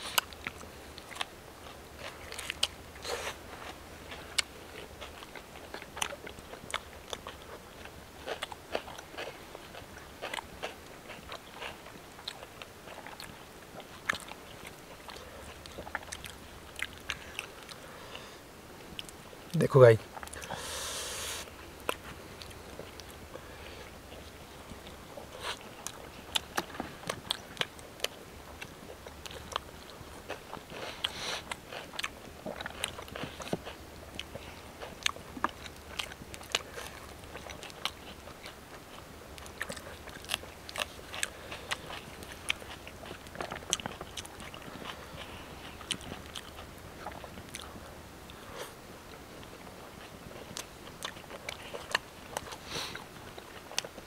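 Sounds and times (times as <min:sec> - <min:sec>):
people chewing and biting: 0:00.0 - 0:54.0
short hiss: 0:20.5 - 0:21.5.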